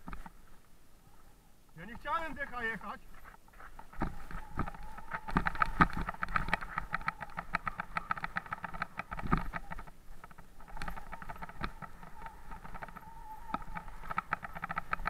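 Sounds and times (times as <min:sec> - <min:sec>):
mountain bike rattling over bumps: 0:02.0 - 0:15.0.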